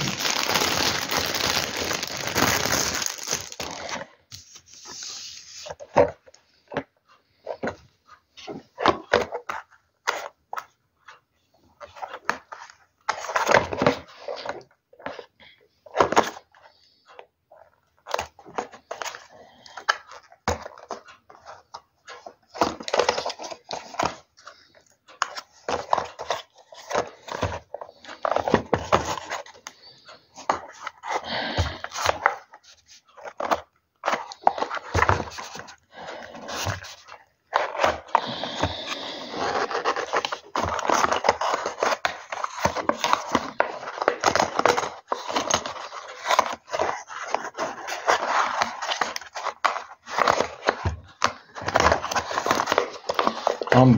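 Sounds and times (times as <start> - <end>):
hands opening cardboard box: 0.0 - 4.7, 18.0 - 53.8
packaging rubbing and scraping: 0.0 - 5.8, 18.2 - 53.9.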